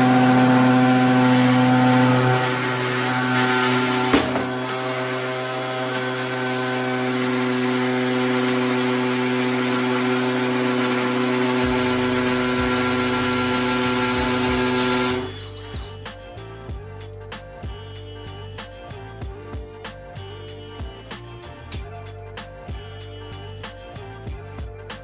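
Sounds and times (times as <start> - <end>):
hammer drill boring into concrete: 0.0 - 15.9.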